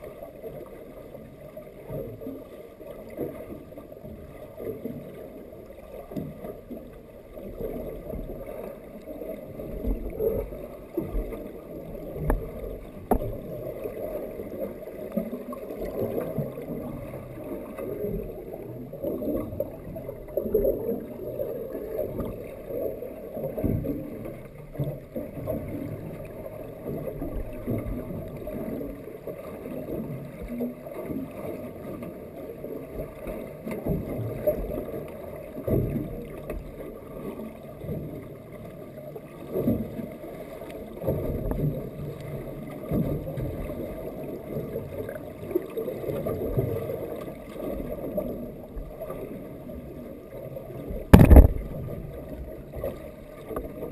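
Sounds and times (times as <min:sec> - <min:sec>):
muffled underwater rumble and sloshing: 0:00.0 - 0:53.9
faint clicks: 0:52.9 - 0:53.8.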